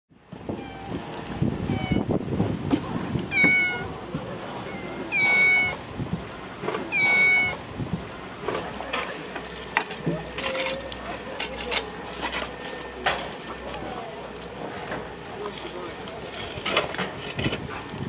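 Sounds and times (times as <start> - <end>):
cats meowing: 0.5 - 2.2, 3.2 - 5.8, 6.8 - 7.6.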